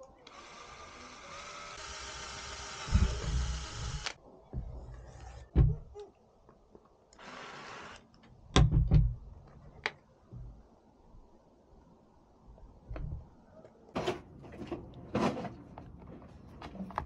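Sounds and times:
cordless drill spinning: 0.2 - 4.2, 7.2 - 8.1.

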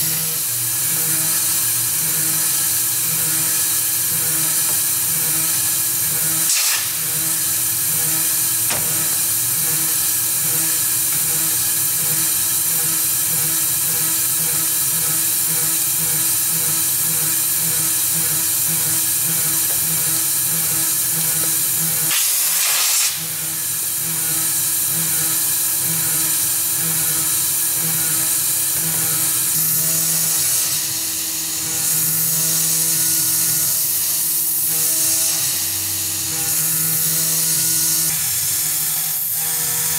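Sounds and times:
mill cutting whine: 0.0 - 22.5.

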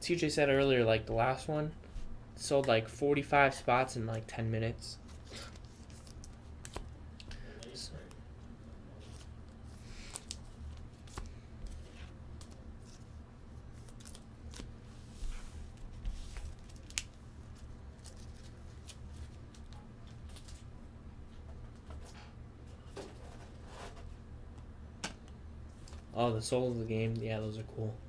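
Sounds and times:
steady low hum: 0.0 - 28.0
plastic sleeves rustling: 8.9 - 20.7.

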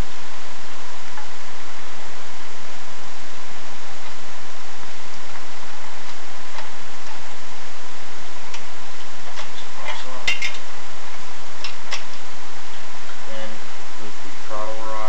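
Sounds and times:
steady hiss: 0.0 - 15.0
metal tools clicking and clinking: 9.4 - 10.6.

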